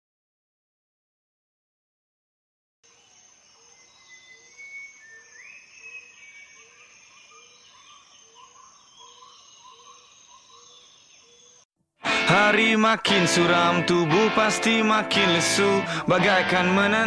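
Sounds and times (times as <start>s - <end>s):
birds chirping: 3.0s - 11.6s.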